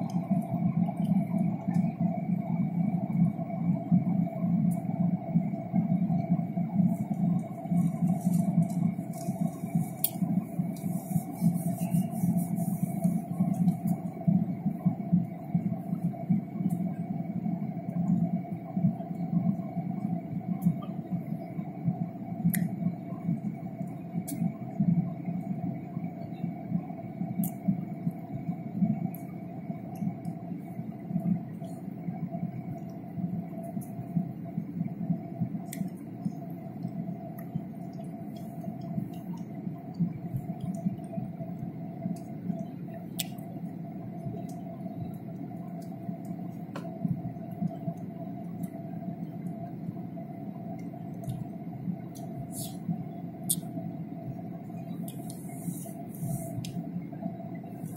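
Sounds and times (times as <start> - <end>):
jet engine drone in cabin: 0.0 - 57.9
faint clicks: 22.4 - 22.9, 50.8 - 51.5.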